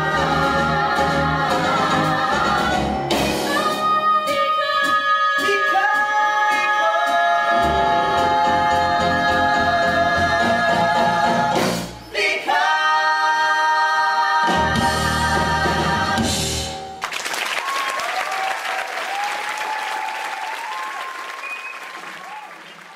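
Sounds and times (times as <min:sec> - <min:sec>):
group singing in harmony: 0:00.0 - 0:16.8
audience applause: 0:17.0 - 0:22.9.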